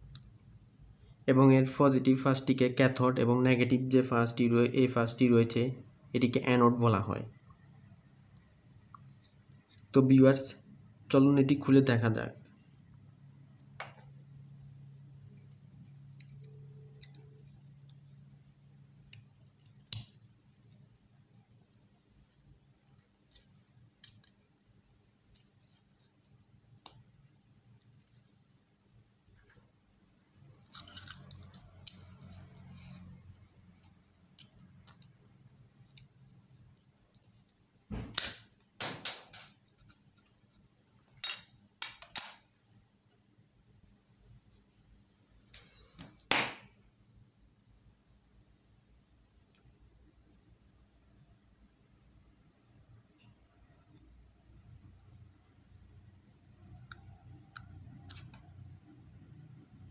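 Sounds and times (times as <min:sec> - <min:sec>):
plastic label being cut and peeled: 0:15.8 - 0:27.0, 0:30.6 - 0:40.4, 0:57.6 - 0:58.6.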